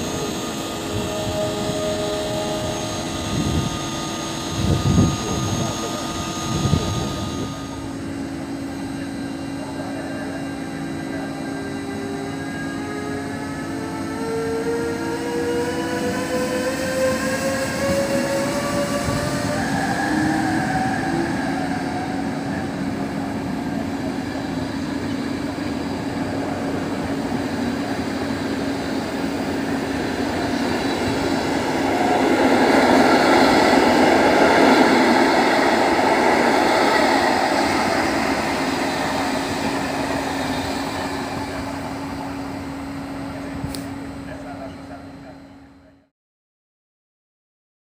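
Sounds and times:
electric locomotive whine: 0:00.0 - 0:46.1
train wheels rolling on rails: 0:14.6 - 0:43.9.

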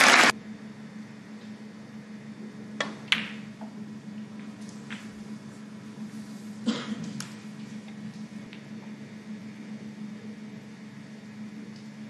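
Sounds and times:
low hum: 0:00.0 - 0:12.0
cue striking ball: 0:02.8 - 0:03.7
snooker balls clicking: 0:02.8 - 0:03.8, 0:04.4 - 0:05.2.

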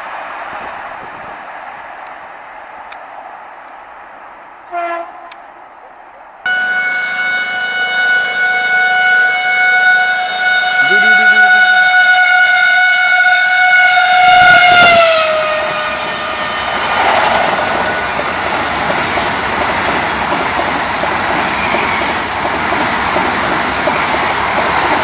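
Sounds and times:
train coaches rushing past: 0:00.0 - 0:25.0
train horn: 0:04.7 - 0:05.4, 0:06.5 - 0:18.2.

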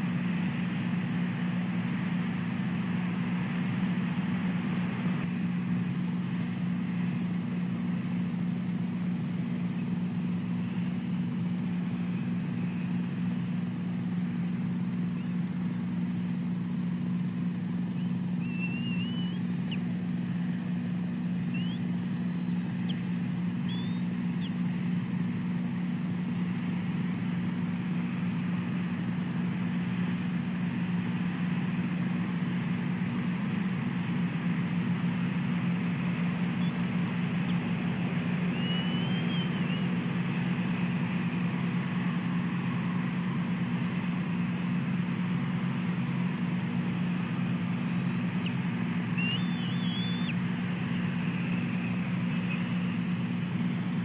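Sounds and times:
low hum: 0:00.0 - 0:54.0
bird chirping: 0:18.0 - 0:19.9, 0:21.5 - 0:24.6, 0:38.3 - 0:39.9, 0:48.4 - 0:53.0.

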